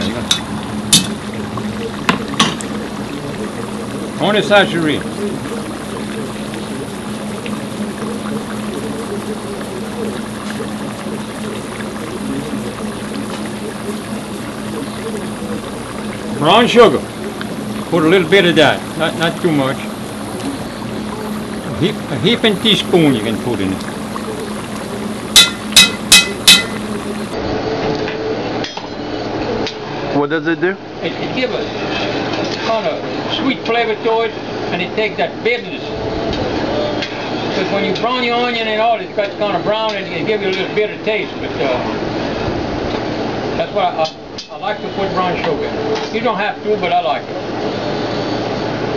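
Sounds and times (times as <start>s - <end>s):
low steady hum: 0.0s - 48.9s
pot simmering with bubbling hiss: 0.0s - 48.9s
metal spoon clanging on pot: 25.4s - 26.8s.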